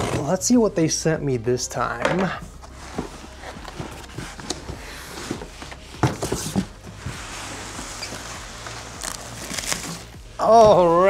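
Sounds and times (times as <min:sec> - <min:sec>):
cardboard box scraping: 0:02.7 - 0:10.1.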